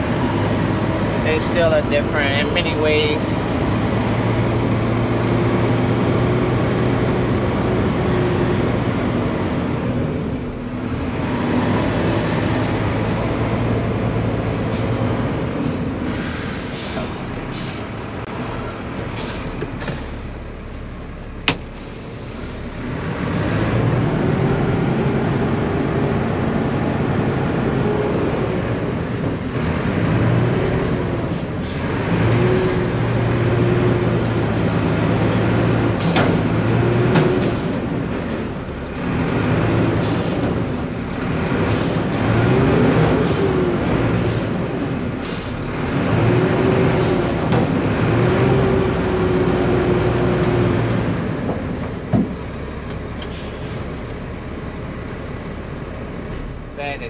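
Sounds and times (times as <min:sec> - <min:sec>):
diesel truck engine running: 0:00.0 - 0:57.0.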